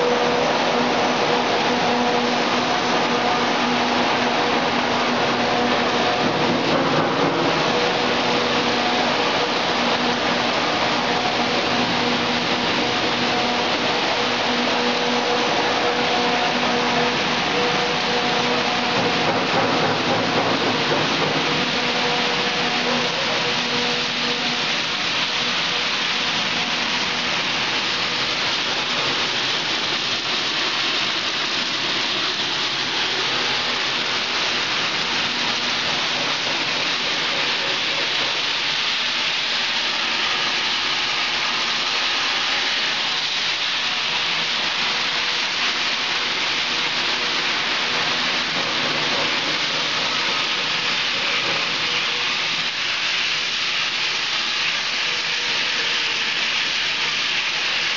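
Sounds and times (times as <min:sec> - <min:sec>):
machinery loud hiss: 0:00.0 - 0:57.9.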